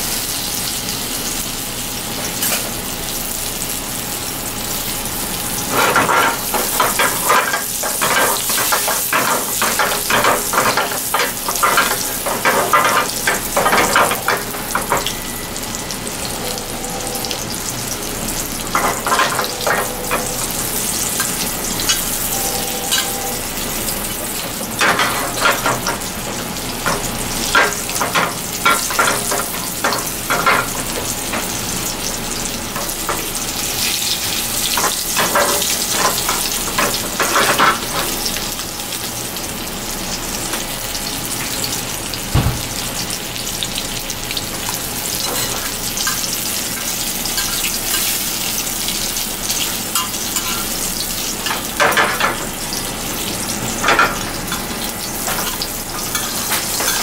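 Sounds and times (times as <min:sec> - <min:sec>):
oil sizzling in a frying pan: 0:00.0 - 0:57.0
dull thump: 0:42.4 - 0:42.7.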